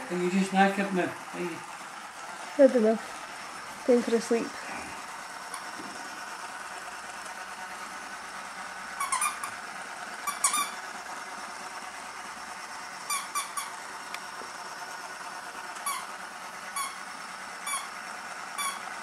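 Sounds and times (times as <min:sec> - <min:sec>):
steady background hum: 0:00.0 - 0:19.0
squeaky dog toy: 0:09.0 - 0:09.6, 0:10.2 - 0:10.8, 0:13.1 - 0:13.8, 0:15.8 - 0:16.1, 0:16.8 - 0:17.0, 0:17.6 - 0:17.9, 0:18.6 - 0:18.9.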